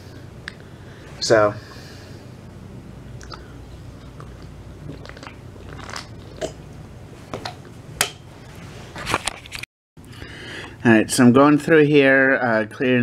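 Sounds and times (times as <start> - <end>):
low room hum: 0.0 - 13.0
person drinking and swallowing: 3.2 - 6.6.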